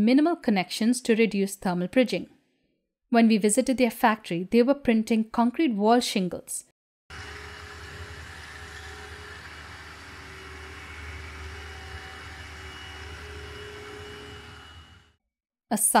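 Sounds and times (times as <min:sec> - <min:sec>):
concrete printer machine hum: 0:07.1 - 0:15.2
faint steady whine: 0:07.1 - 0:15.2.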